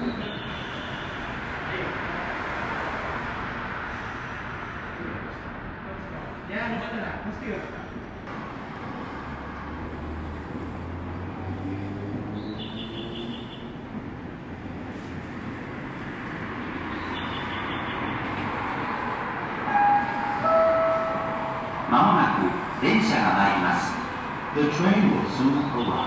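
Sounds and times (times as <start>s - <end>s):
train running noise: 13.7s - 26.0s
short loud steady tones: 19.7s - 22.6s.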